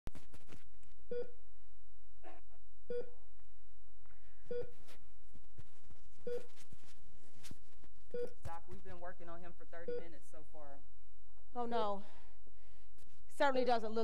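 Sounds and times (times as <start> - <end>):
heart monitor beeping: 1.1 - 1.4, 2.2 - 3.4, 4.3 - 5.0, 6.1 - 6.9, 8.0 - 10.4.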